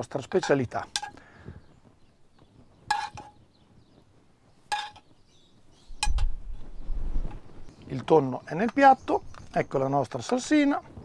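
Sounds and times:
metal spoon clinking against dishes: 0.4 - 1.2, 2.9 - 3.3.

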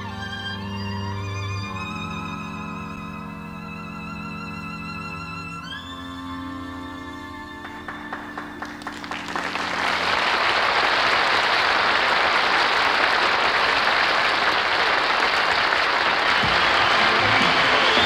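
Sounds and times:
audience applause: 7.6 - 18.0.

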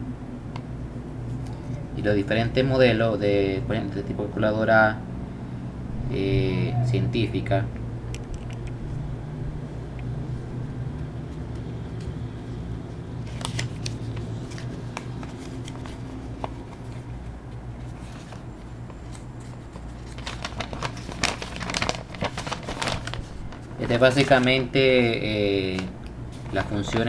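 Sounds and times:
steady low hum: 0.0 - 27.0
booklet pages rustling: 11.2 - 24.8, 25.6 - 27.0.

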